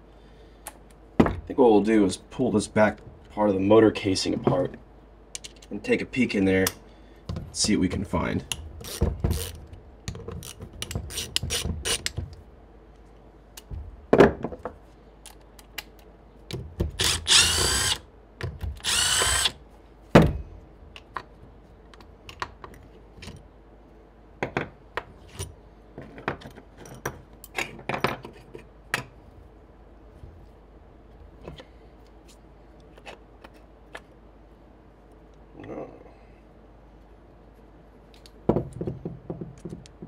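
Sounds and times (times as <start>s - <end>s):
power driver whirring: 16.9s - 18.0s, 18.7s - 19.6s.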